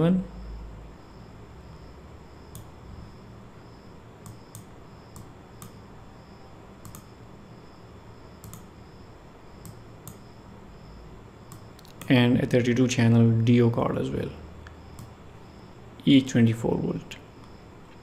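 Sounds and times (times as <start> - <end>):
faint low hum: 0.0 - 18.0
computer mouse clicking: 2.5 - 2.7, 4.2 - 5.8, 6.8 - 7.1, 8.4 - 8.7, 9.6 - 10.2, 11.5 - 12.2.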